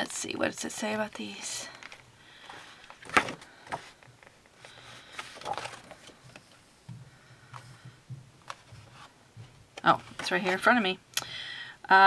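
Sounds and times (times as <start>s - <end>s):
paper and plastic wrap rustling: 1.1s - 6.6s.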